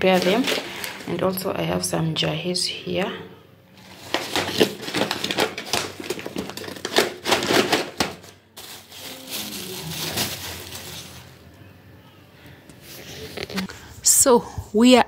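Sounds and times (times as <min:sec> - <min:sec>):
paper bag crinkling: 0:00.0 - 0:01.2, 0:03.8 - 0:11.5
plastic wrap rustling: 0:00.0 - 0:01.4, 0:03.8 - 0:11.5.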